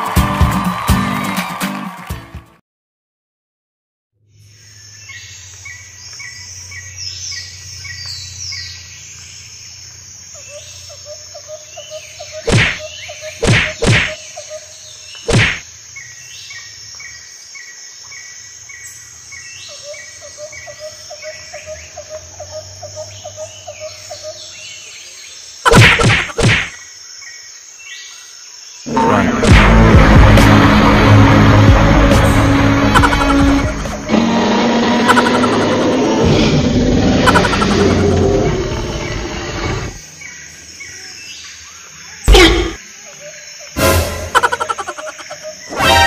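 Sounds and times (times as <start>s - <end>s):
music: 0.0s - 2.6s, 29.0s - 34.7s, 43.8s - 44.4s, 45.7s - 46.0s
insects trilling: 4.3s - 29.5s, 32.8s - 46.0s
birds chirping: 4.4s - 29.5s, 32.5s - 46.0s.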